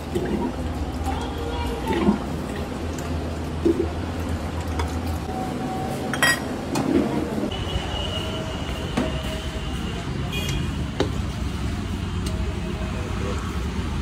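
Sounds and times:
dishes and utensils clinking: 6.1s - 7.1s.

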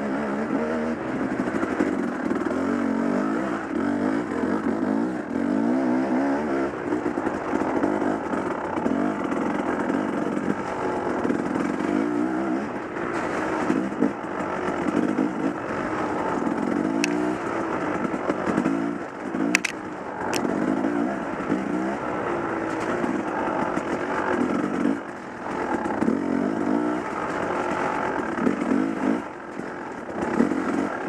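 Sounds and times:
dirt bike engine revving: 0.0s - 31.0s
sharp clicks: 19.5s - 20.5s.

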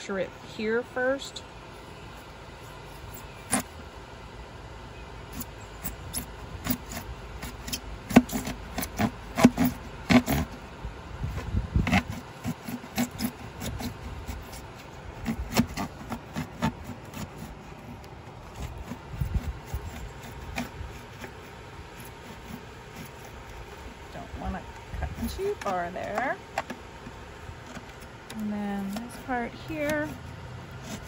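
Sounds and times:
blade scraping through foam: 2.6s - 3.8s, 5.3s - 10.6s, 11.8s - 24.4s, 28.7s - 31.0s.

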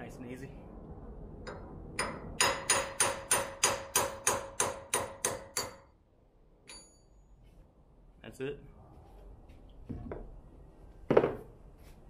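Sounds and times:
hammer striking metal: 1.4s - 6.0s.

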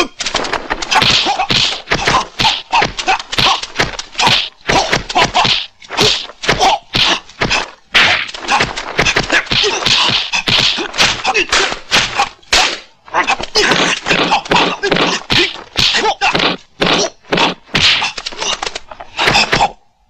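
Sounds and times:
fighters shouting: 0.0s - 19.8s
punch and kick whacks: 0.2s - 18.4s.

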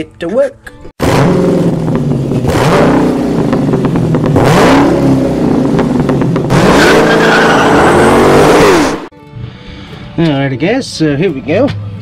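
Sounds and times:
car engine revving: 1.0s - 9.1s.

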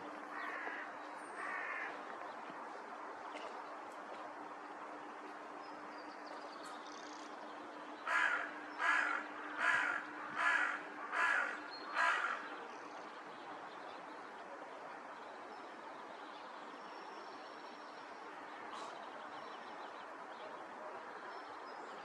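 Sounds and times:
crow cawing: 0.3s - 2.0s, 8.1s - 12.5s.

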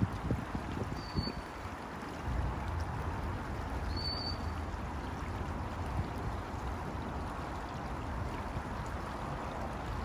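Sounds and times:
wind rumble on microphone: 0.0s - 3.8s
flowing water rushing: 0.0s - 10.0s.

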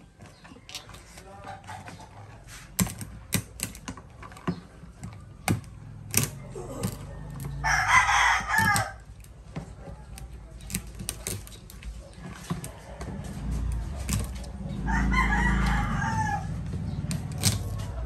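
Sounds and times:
rooster crowing: 6.7s - 9.1s, 14.6s - 16.8s.

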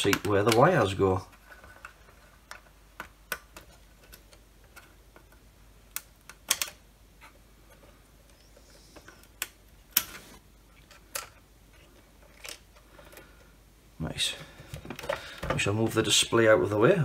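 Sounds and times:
plastic connectors clicking: 1.7s - 6.8s.

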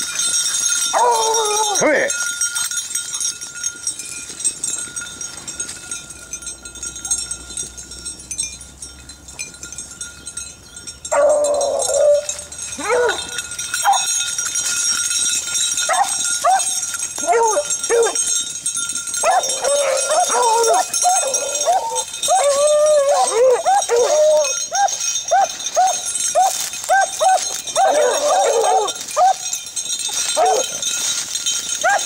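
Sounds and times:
hounds baying and howling: 0.0s - 2.1s, 11.0s - 32.0s.

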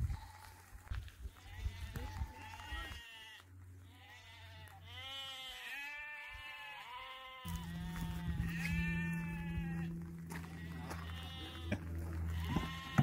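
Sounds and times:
sheep bleating: 1.3s - 13.0s
low steady hum: 7.5s - 13.0s.

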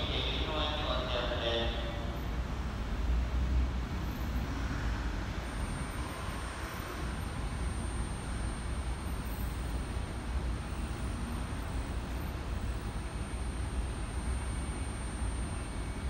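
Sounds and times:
electric train humming: 0.0s - 4.0s
high-pitched whine: 4.0s - 16.0s.

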